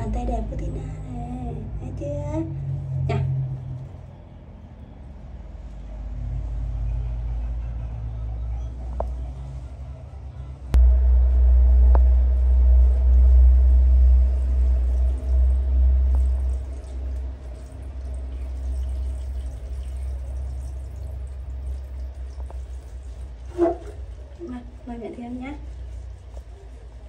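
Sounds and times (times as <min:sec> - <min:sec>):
water running into plastic bucket: 0:14.8 - 0:24.4.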